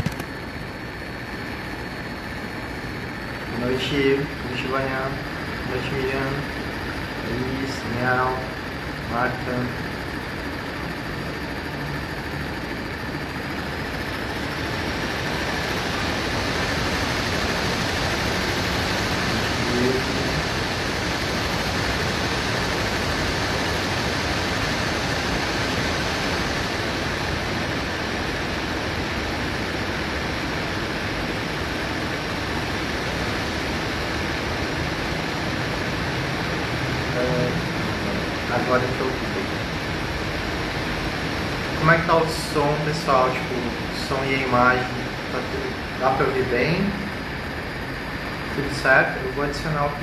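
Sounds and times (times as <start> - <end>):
microphone hiss: 36.5 - 39.9, 40.7 - 50.0.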